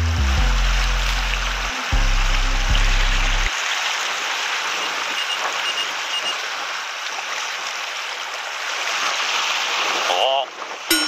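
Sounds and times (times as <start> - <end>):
sea water washing over rocks: 3.4 - 11.0.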